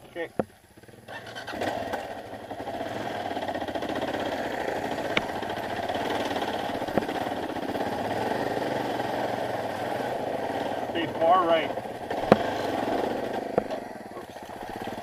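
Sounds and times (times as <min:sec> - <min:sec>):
dirt bike engine at low revs: 0:00.0 - 0:15.0
sharp ticks: 0:03.4 - 0:08.0.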